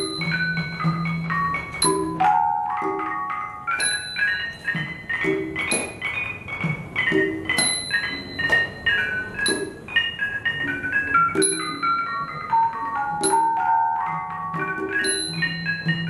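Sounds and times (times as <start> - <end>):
gong circle melody: 0.0 - 16.0.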